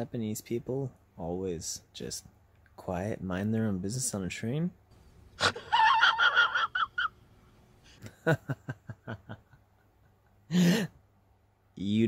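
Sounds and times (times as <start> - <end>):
shrill cackling laugh: 5.4 - 7.2
man laughing in short breaths: 10.2 - 11.0.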